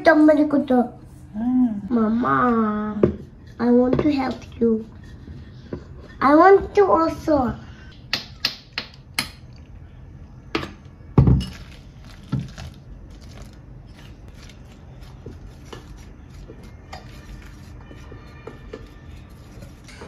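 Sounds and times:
utensil stirring dough in bowl: 0:13.8 - 0:20.0.

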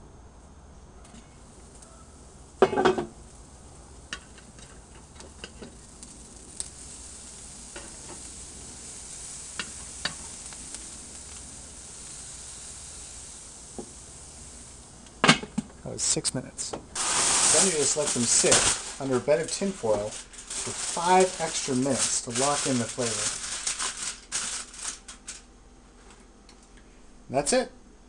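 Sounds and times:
steaks sizzling on a grill: 0:01.4 - 0:16.3, 0:16.9 - 0:25.5
metal grill lid clatter: 0:02.6 - 0:03.1.

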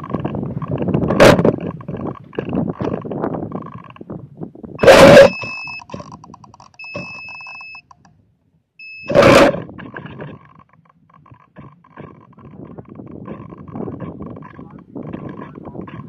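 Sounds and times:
wind buffeting microphone: 0:00.0 - 0:07.3, 0:09.2 - 0:16.0
high electronic beep: 0:04.8 - 0:07.9, 0:08.8 - 0:09.3.

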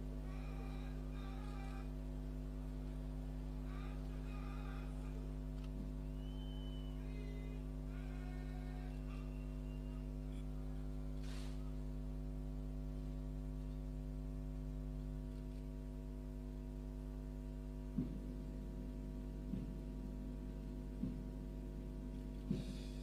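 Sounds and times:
electrical mains hum: 0:00.0 - 0:23.0
faint thuds: 0:17.9 - 0:18.5, 0:19.4 - 0:20.0, 0:20.9 - 0:21.4, 0:22.4 - 0:22.9.

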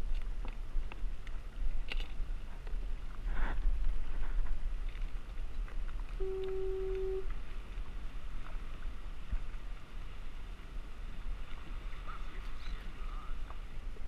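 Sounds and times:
water moving around kayak: 0:00.0 - 0:14.0
wind buffeting microphone: 0:00.0 - 0:14.0
faint ticks: 0:04.8 - 0:09.6
steady pitched tone: 0:06.2 - 0:07.3.

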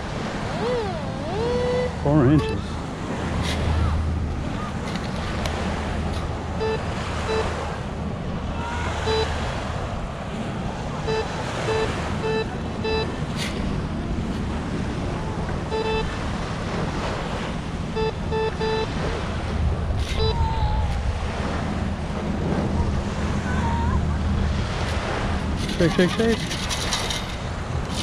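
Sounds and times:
surf: 0:00.0 - 0:28.0
wind on microphone: 0:00.0 - 0:28.0
metal detector beeps: 0:00.6 - 0:02.7, 0:06.6 - 0:07.6, 0:09.0 - 0:09.4, 0:11.0 - 0:13.7, 0:15.7 - 0:16.2, 0:17.9 - 0:19.0, 0:20.0 - 0:20.5.

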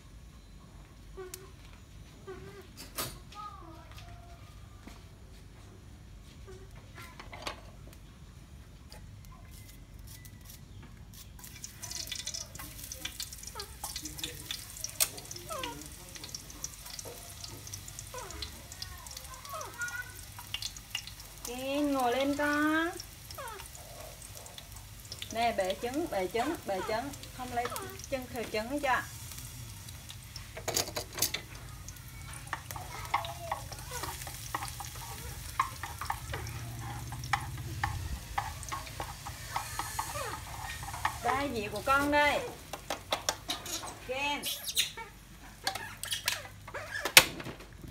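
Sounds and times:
eggs sizzling in hot oil: 0:11.1 - 0:46.7
chopsticks scraping a pan: 0:32.4 - 0:42.6.

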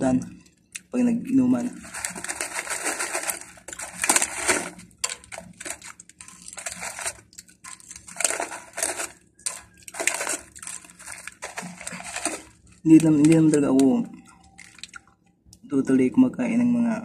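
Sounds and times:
foil bag crinkling: 0:01.5 - 0:15.1
chips being chewed: 0:01.7 - 0:15.1.

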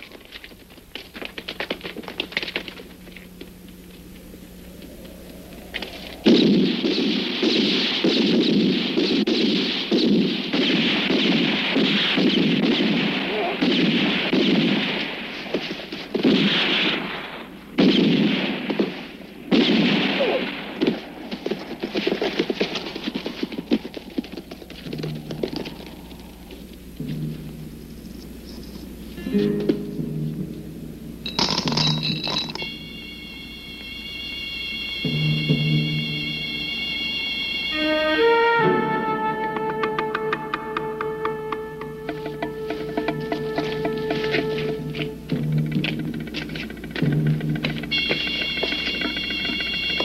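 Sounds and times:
low hum: 0:00.0 - 0:16.2, 0:20.4 - 0:50.0
machine-gun fire: 0:06.4 - 0:23.8.

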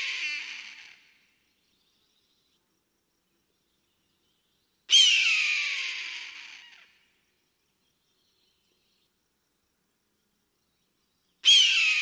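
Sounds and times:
eagle scream: 0:00.0 - 0:01.1, 0:04.9 - 0:07.0, 0:11.4 - 0:12.0.

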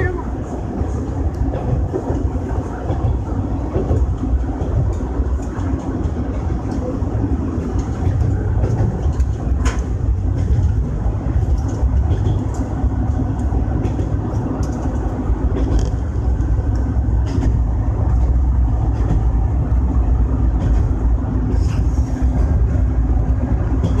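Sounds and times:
railcar engine and wheels rumbling: 0:00.0 - 0:24.0.

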